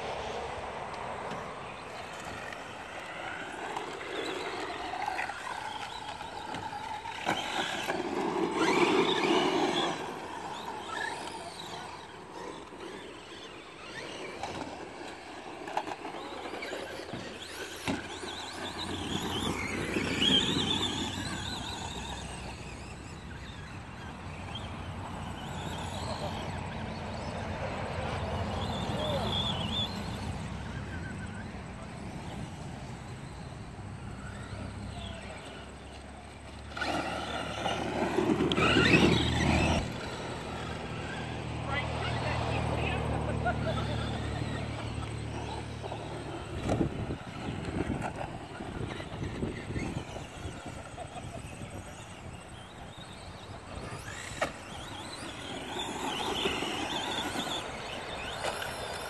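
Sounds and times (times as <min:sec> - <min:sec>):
radio-controlled truck motor whining: 0:00.0 - 0:59.0
tyres rushing on gravel: 0:00.0 - 0:59.0
tyres throwing dirt and gravel: 0:36.7 - 0:41.2.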